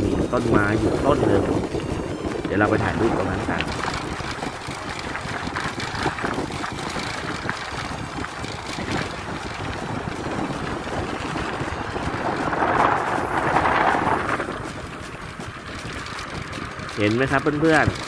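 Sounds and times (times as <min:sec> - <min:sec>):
small tyres rumbling on concrete: 0:00.0 - 0:18.0
wind buffeting microphone: 0:00.0 - 0:18.0.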